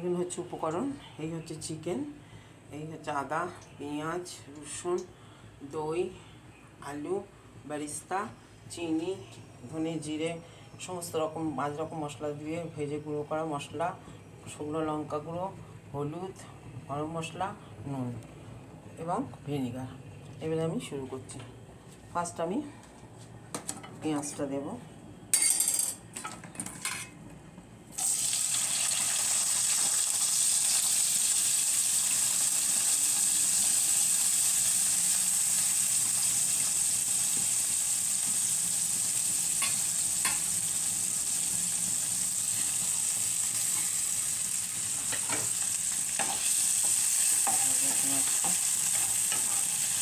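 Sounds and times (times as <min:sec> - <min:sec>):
onions sizzling in hot oil: 0:27.9 - 0:50.0.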